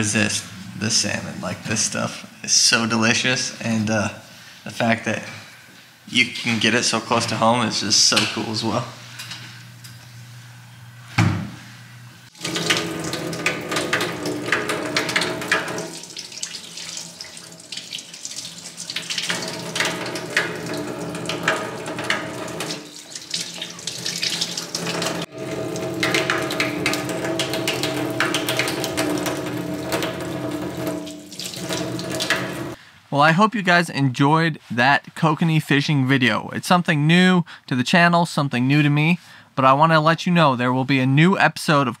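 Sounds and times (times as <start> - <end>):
faucet water running into sink: 12.3 - 32.8.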